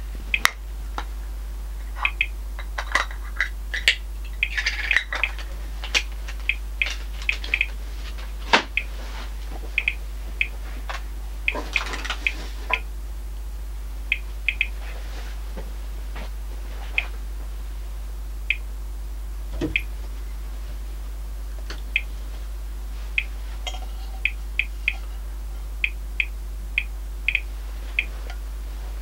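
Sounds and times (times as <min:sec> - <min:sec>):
low electrical hum: 0:00.0 - 0:29.0
sharp clicks: 0:02.0 - 0:02.4, 0:05.2 - 0:07.8, 0:14.1 - 0:14.8, 0:25.8 - 0:28.1.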